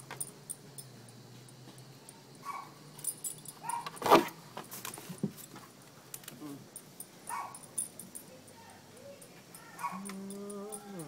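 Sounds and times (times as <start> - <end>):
dog collar tags jingling: 2.0 - 4.2, 6.7 - 11.0.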